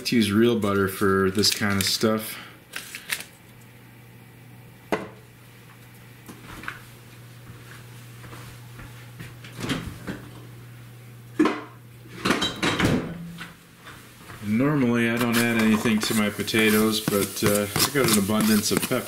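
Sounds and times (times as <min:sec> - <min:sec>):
steady low hum: 0:00.0 - 0:19.0
kitchenware clattering: 0:11.4 - 0:13.4, 0:15.2 - 0:19.0.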